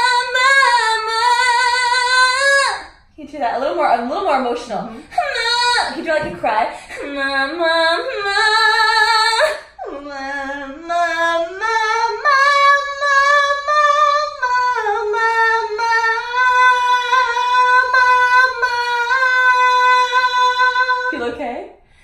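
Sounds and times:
woman singing vocal exercise: 0.0s - 3.0s, 3.7s - 21.5s.

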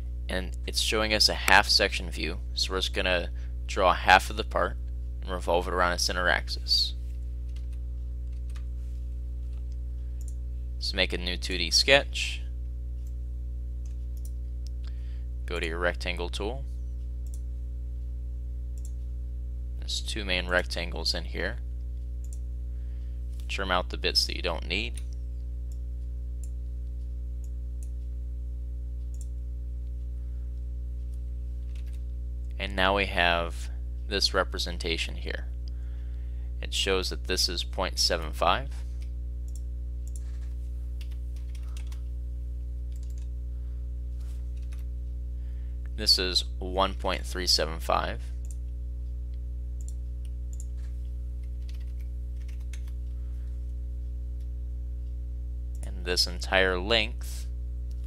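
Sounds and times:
low electrical hum: 0.0s - 58.0s
computer mouse clicks: 42.9s - 43.3s.

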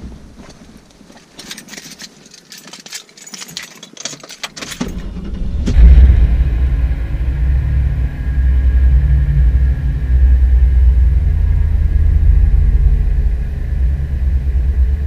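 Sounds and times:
keys jangling: 1.2s - 5.0s
truck engine cranking and starting: 3.2s - 9.7s
engine running steadily: 4.6s - 15.0s.

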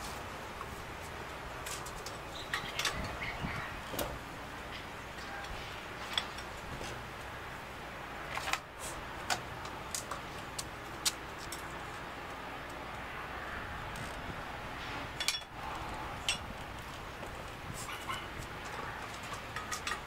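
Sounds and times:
steady background noise: 0.0s - 20.0s
metallic clicks and clanks: 17.9s - 20.0s.

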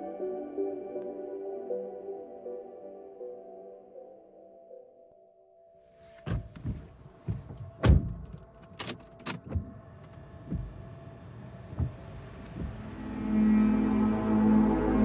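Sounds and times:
scattered mechanical clunks and knocks: 6.3s - 10.8s, 11.7s - 12.9s
loud steady low drone: 12.5s - 15.0s.

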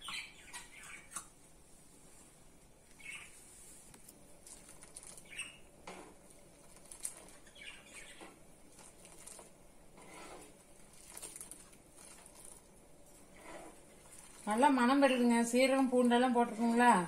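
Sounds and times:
liquid splashing and dribbling: 8.7s - 9.6s, 10.4s - 14.7s.

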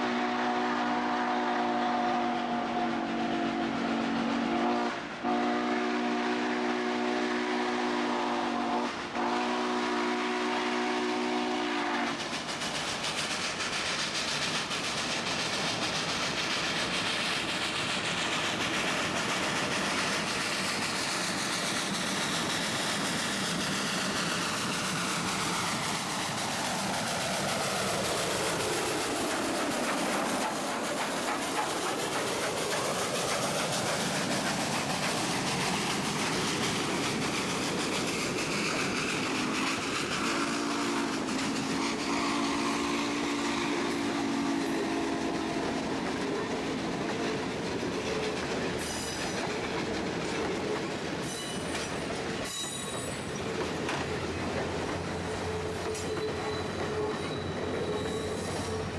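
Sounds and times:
steam locomotive whistle: 0.0s - 12.2s, 39.4s - 46.0s, 55.2s - 58.9s
steam locomotive exhaust: 0.0s - 58.9s.

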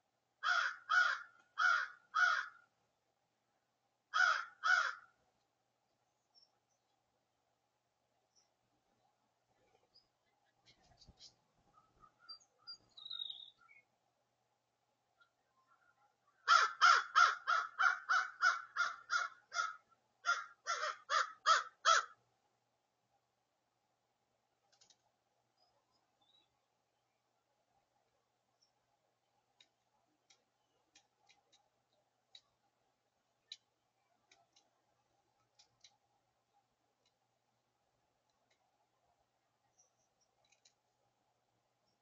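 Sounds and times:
crow cawing: 0.4s - 2.7s, 4.1s - 5.1s, 16.4s - 22.2s.

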